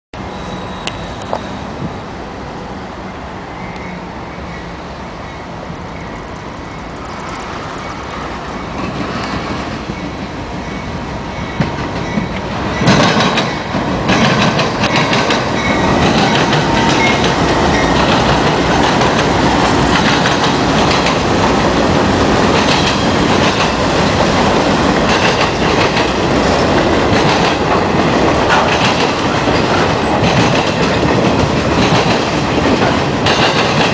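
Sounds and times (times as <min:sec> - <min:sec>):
diesel locomotives passing: 0:00.2 - 0:33.9
train wheels rumbling on rail: 0:00.2 - 0:33.9
wheels clicking over rail joints: 0:11.5 - 0:33.9.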